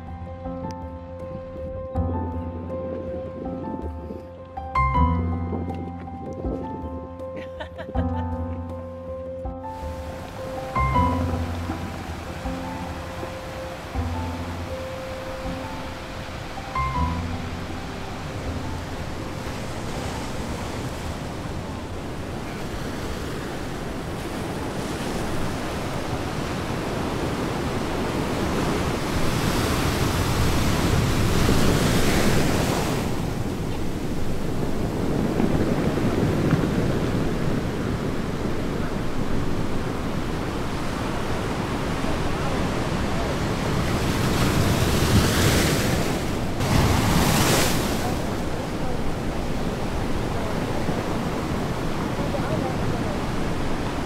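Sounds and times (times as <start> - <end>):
wind buffeting microphone: 9.8 - 54.0
surf breaking on rocks: 17.6 - 54.0.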